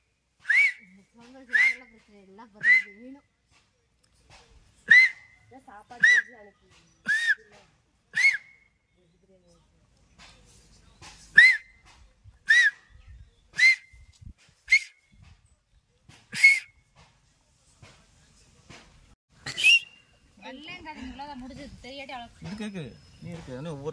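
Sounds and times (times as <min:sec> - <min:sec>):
man finger whistling: 0:00.4 - 0:00.9, 0:01.5 - 0:01.9, 0:02.6 - 0:03.0, 0:04.9 - 0:05.4, 0:06.0 - 0:06.3, 0:07.0 - 0:07.5, 0:08.1 - 0:08.8, 0:11.3 - 0:11.8, 0:12.4 - 0:12.9, 0:13.6 - 0:14.1, 0:14.7 - 0:15.0, 0:16.3 - 0:16.8, 0:19.5 - 0:20.2.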